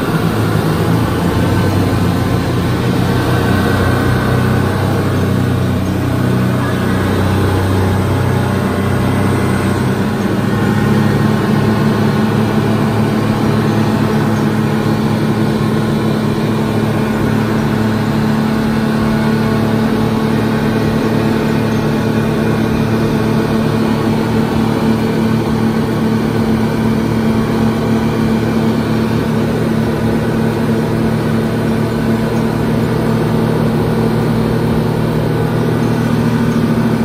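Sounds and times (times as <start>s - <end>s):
outboard motors running: 0.0s - 37.0s
rush of boat wake: 0.0s - 37.0s.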